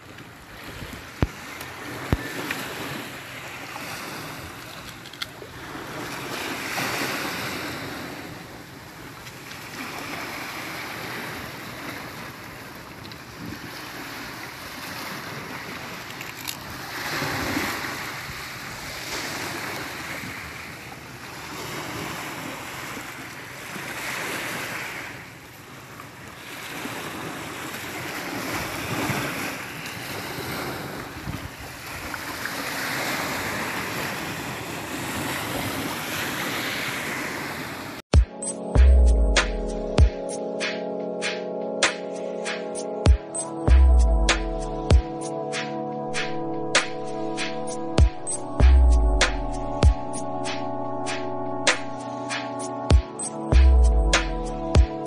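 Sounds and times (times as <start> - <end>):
waves on pebble shore: 0.0 - 38.0
wind: 0.0 - 55.0.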